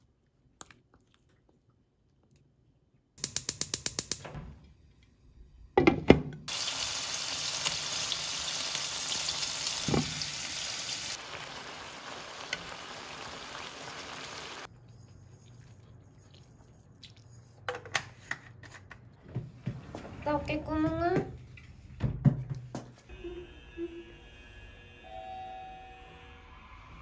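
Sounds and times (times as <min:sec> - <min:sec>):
food sizzling in a wok: 0:06.5 - 0:14.7.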